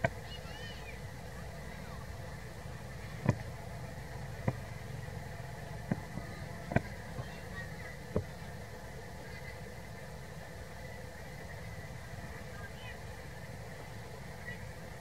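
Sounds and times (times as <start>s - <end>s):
low engine-like hum: 0.0s - 15.0s.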